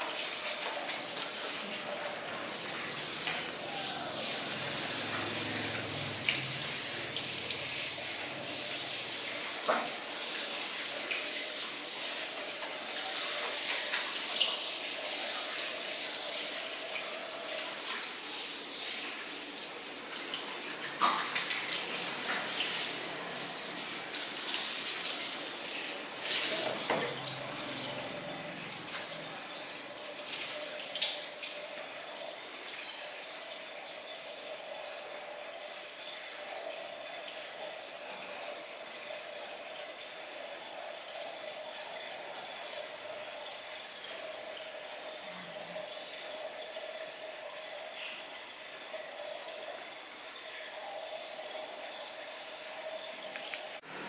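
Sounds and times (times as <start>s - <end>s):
shower sprayer water hissing: 0.0s - 33.5s.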